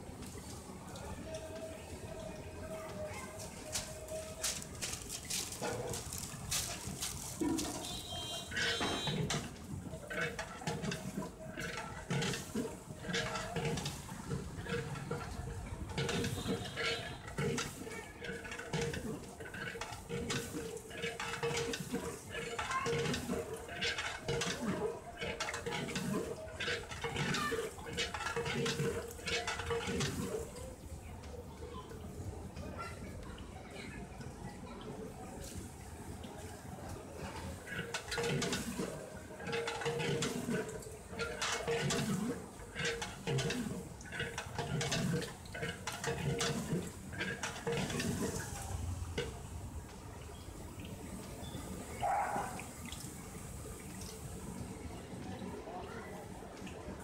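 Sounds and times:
liquid sloshing: 0:03.2 - 0:30.9, 0:34.2 - 0:57.0
ladle scraping metal pot: 0:05.5 - 0:30.6, 0:37.5 - 0:49.4.

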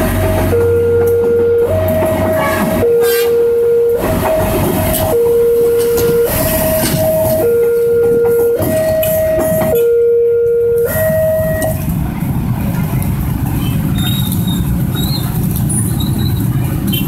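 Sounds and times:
level-crossing warning alarm: 0:00.0 - 0:11.8
diesel train rumbling: 0:00.0 - 0:17.0.

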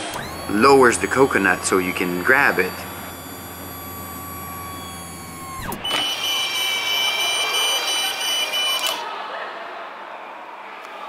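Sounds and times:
high pulsing whine: 0:00.0 - 0:06.3
machine mechanism whining: 0:00.0 - 0:09.0.

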